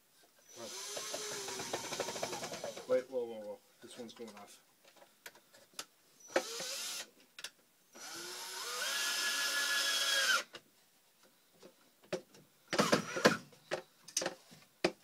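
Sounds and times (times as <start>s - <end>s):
cordless drill whining: 0.5s - 2.9s, 6.2s - 7.1s, 8.0s - 10.5s, 12.8s - 13.4s.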